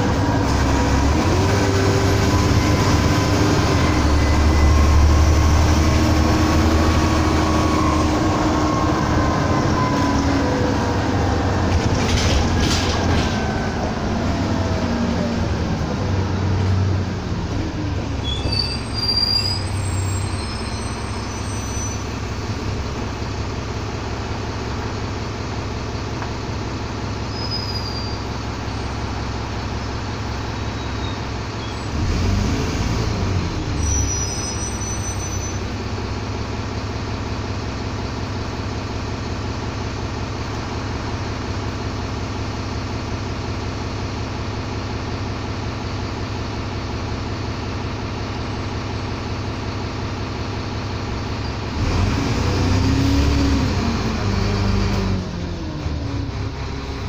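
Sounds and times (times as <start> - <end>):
bus engine and road drone: 0.0 - 57.0
high squeaks: 18.2 - 22.2, 27.3 - 29.0, 33.8 - 35.7.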